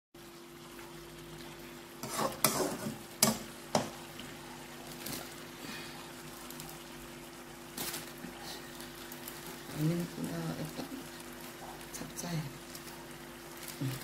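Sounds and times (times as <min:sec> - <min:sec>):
metal spatula scraping a wok: 0:02.0 - 0:03.0.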